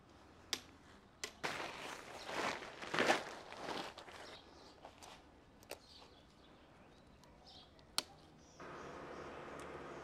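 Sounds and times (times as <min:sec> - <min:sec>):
tent fabric rustling: 0:01.4 - 0:05.3.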